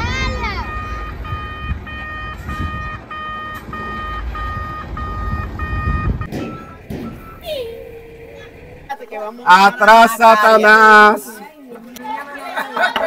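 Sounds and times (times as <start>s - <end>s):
electronic beeper short beeps: 0.7s - 8.0s
low rumble: 1.1s - 9.8s.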